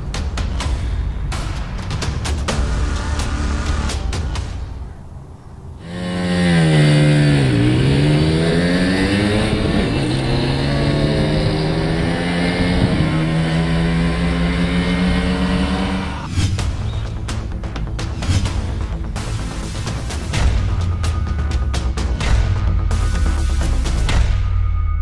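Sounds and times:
two-stroke moped engine revving: 0:05.8 - 0:16.3.

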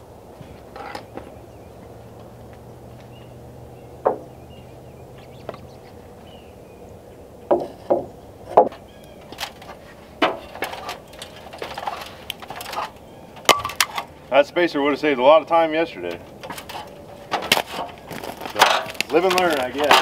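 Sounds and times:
lumber boards knocking: 0:04.0 - 0:04.4, 0:07.5 - 0:08.8.

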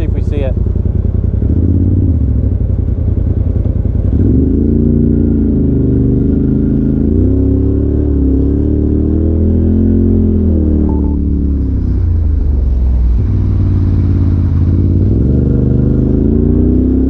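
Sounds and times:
tyres on gravel road: 0:11.0 - 0:16.1.

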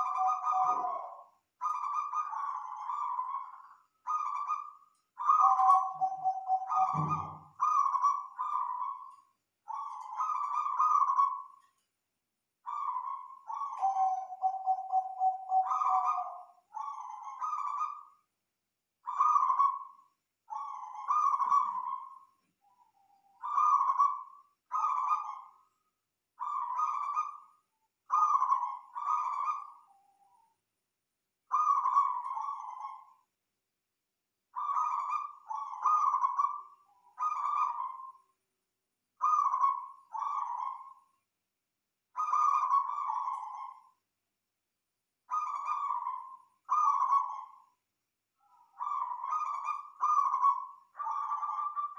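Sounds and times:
dove cooing: 0:00.0 - 0:09.1, 0:12.7 - 0:18.1, 0:19.1 - 0:22.2, 0:23.4 - 0:25.5, 0:28.1 - 0:29.8, 0:31.5 - 0:33.1, 0:34.6 - 0:38.2, 0:39.2 - 0:41.0, 0:42.2 - 0:43.8, 0:45.3 - 0:47.6, 0:48.5 - 0:51.9.

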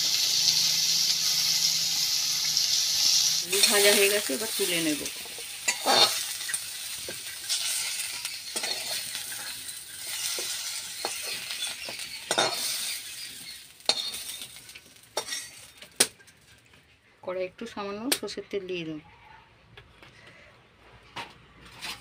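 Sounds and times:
potatoes sizzling in hot oil: 0:00.0 - 0:16.2
spatula scraping metal pan: 0:03.1 - 0:15.8.

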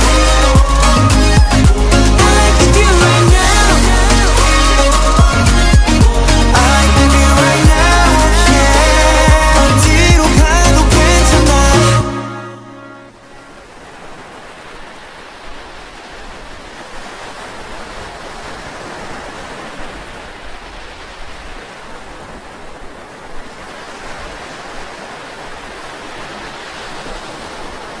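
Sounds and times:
waves breaking on beach: 0:12.7 - 0:28.0.

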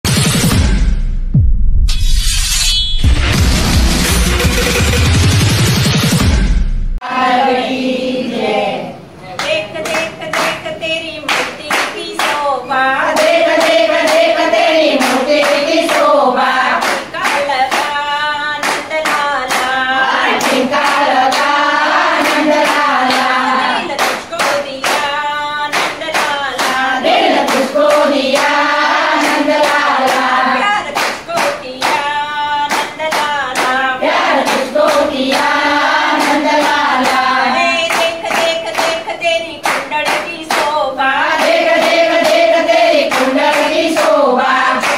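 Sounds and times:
women singing together: 0:07.0 - 0:44.9
hand-clapping: 0:09.4 - 0:44.9.

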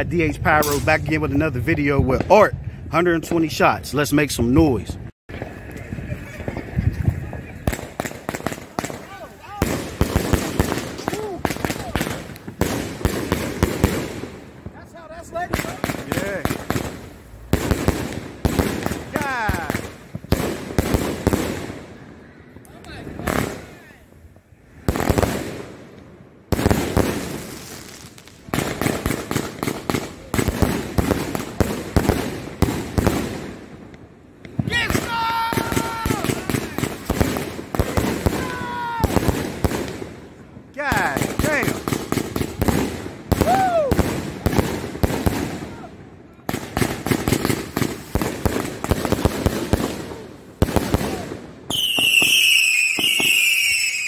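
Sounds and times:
firework shots: 0:00.0 - 0:02.4, 0:05.3 - 0:54.0
high-pitched firework whistle: 0:51.7 - 0:54.0.

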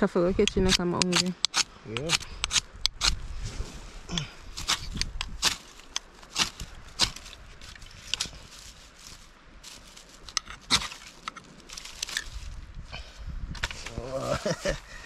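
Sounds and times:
dry sticks snapping: 0:00.4 - 0:03.2, 0:04.1 - 0:12.6.

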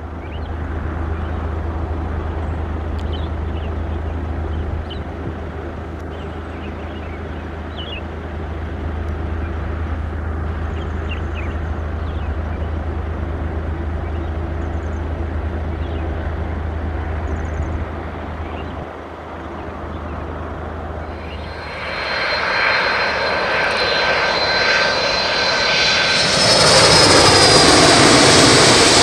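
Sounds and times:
low engine rumble: 0:00.0 - 0:29.0
bird chirps: 0:06.1 - 0:08.1
high rapid trills: 0:21.2 - 0:29.0.

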